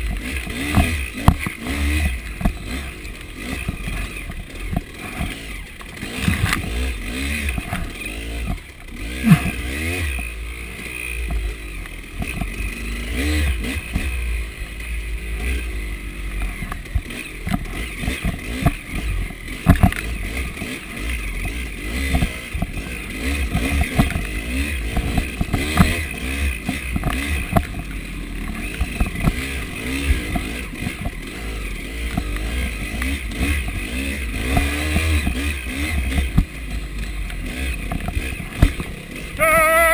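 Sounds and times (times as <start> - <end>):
dirt bike engine revving: 0.0 - 39.9
bike knocking on rough ground: 24.9 - 31.2, 37.8 - 39.0.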